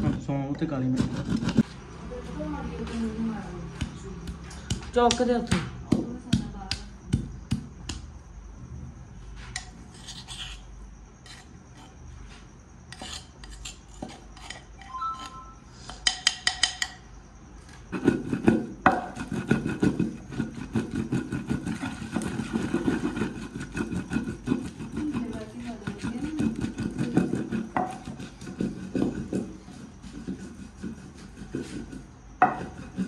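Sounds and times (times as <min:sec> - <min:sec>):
pestle grinding and pounding: 0:00.0 - 0:01.8, 0:03.6 - 0:08.3, 0:17.8 - 0:33.0
mortar and pestle knocks and clinks: 0:31.8 - 0:33.0.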